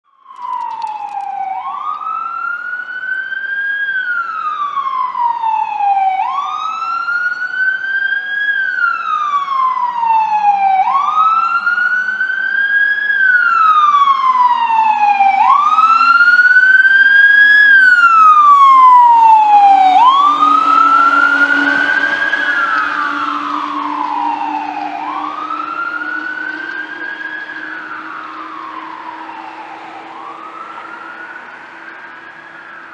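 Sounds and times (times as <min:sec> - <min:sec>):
fire truck siren wailing: 0:00.1 - 0:32.9
low engine drone: 0:15.4 - 0:32.9.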